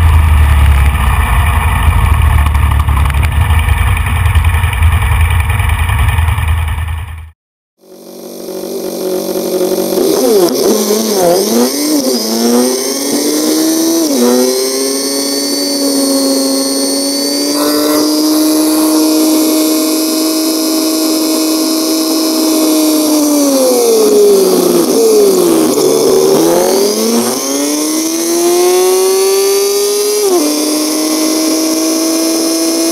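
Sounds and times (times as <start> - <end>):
motorcycle engine running: 0.0 - 32.9
wind rush: 17.5 - 20.7.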